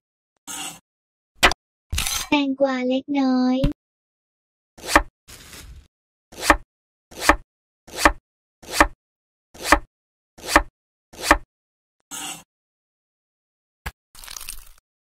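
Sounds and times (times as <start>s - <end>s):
knife slicing cucumber on board: 4.8s - 5.1s, 6.4s - 9.0s, 9.6s - 11.4s.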